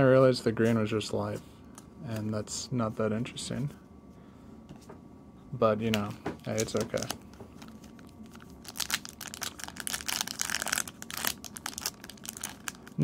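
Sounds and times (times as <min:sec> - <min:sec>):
foil wrapper crinkling and tearing: 0:06.5 - 0:13.0.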